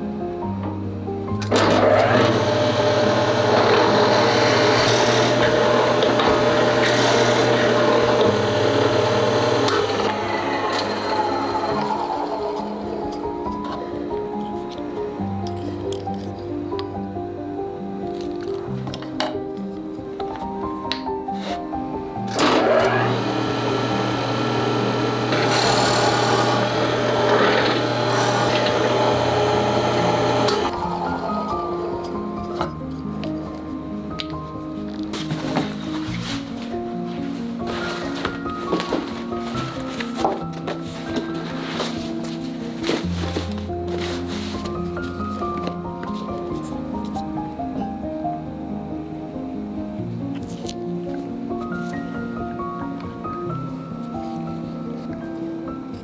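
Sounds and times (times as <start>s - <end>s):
drill press motor hum: 1.5s - 13.0s, 22.4s - 31.5s
drill bit rasping through wood: 1.6s - 12.9s, 22.5s - 31.3s.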